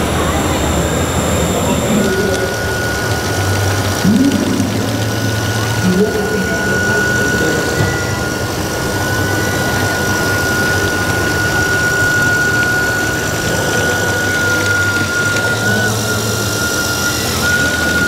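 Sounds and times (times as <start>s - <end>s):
toy bulldozer whining: 0.0s - 18.0s.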